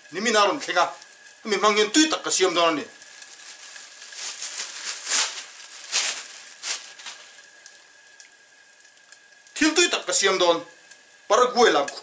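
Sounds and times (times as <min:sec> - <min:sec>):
plastic bag crinkling: 0:00.8 - 0:08.2.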